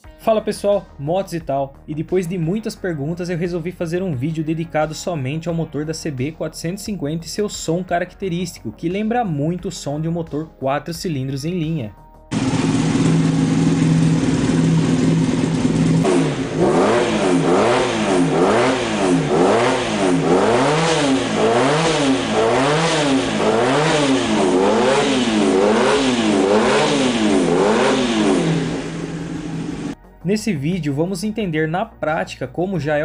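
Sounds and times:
motorcycle engine idling and revving: 12.3 - 30.0.

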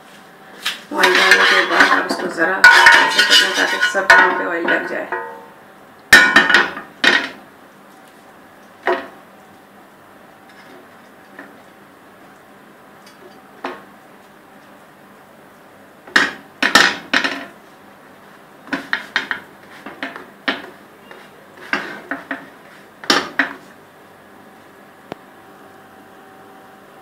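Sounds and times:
spatula clattering on grill pan: 1.0 - 4.4.

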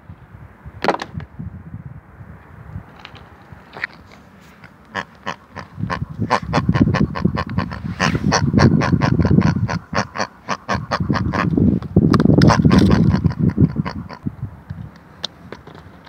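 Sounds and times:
pig grunting and oinking: 4.9 - 11.5, 12.4 - 14.2.

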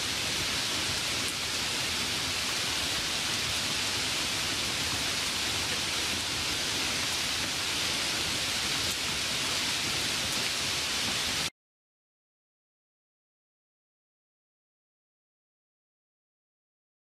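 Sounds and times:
steady hiss: 0.0 - 11.5.

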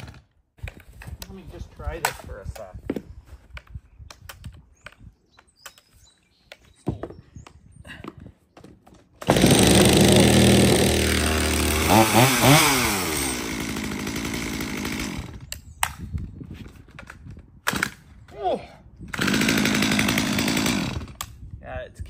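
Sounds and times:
chainsaw starting and revving: 0.0 - 0.3, 9.2 - 15.5, 19.1 - 21.2.

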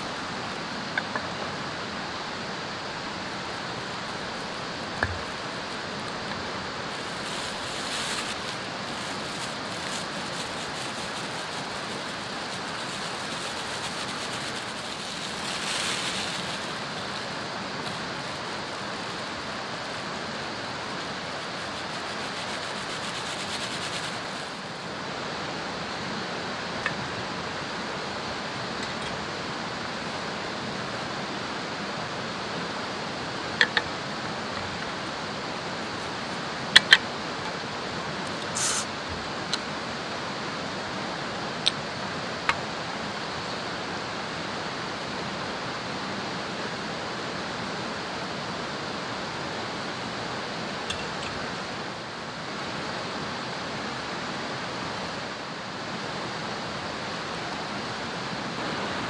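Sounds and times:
stream water flowing: 0.0 - 59.0
brief hissing bursts: 38.5 - 38.9.

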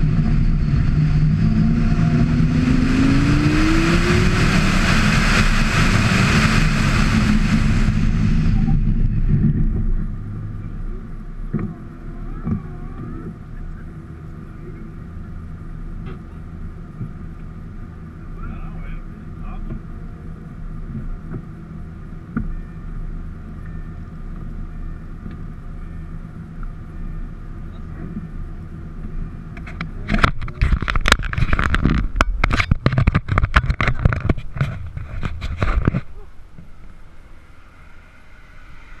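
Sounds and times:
car engine idling: 0.0 - 39.0
camera handling rubbing and knocking: 29.6 - 36.1.

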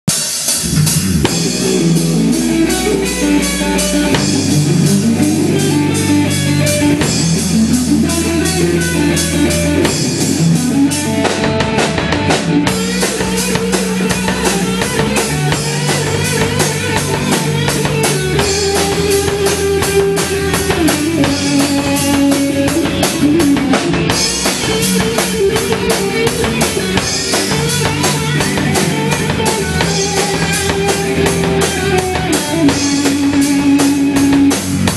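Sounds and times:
drum kit beat: 0.1 - 34.9
electric guitars: 0.1 - 34.9.

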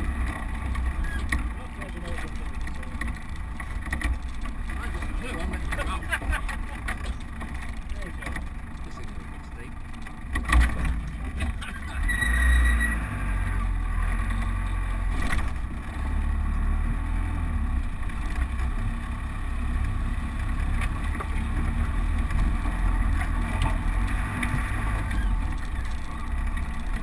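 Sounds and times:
vehicle engine running low: 0.0 - 27.0
brief high squeak: 12.0 - 13.0.

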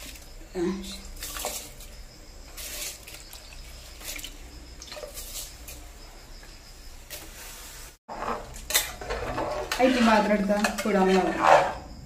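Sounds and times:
water splashing and trickling into pot: 0.0 - 11.1.

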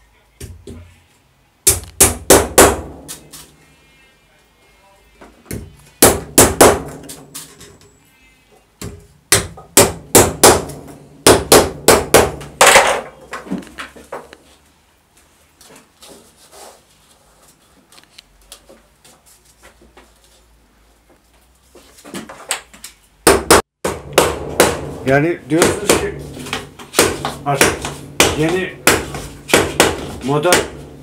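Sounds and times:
hammer knocking on wooden hoop: 23.3 - 31.0.

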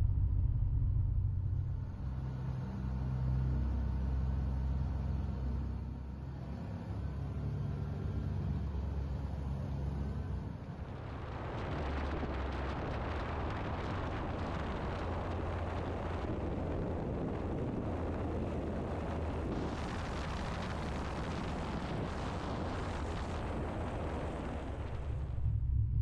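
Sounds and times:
propeller aircraft engine: 4.4 - 25.5
wind rush on microphone: 10.6 - 26.0.

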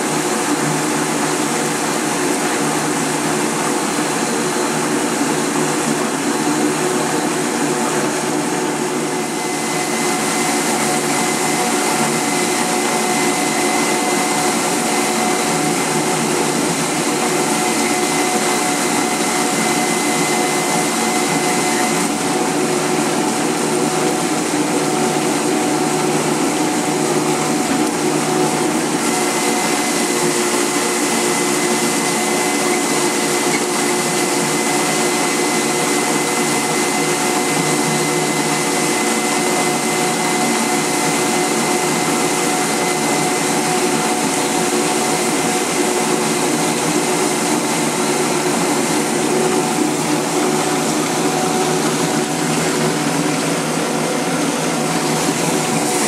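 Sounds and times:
electric motor humming and whining: 0.0 - 56.0
brush rollers scrubbing under water: 9.0 - 56.0.

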